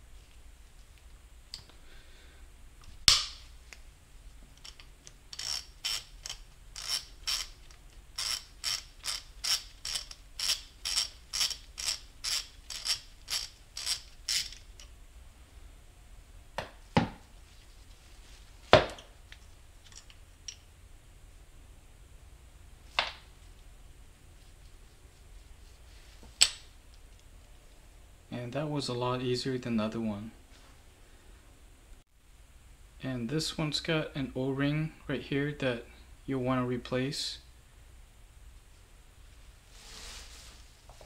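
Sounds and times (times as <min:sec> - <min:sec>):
ratchet wrench clicking: 0:04.6 - 0:14.9.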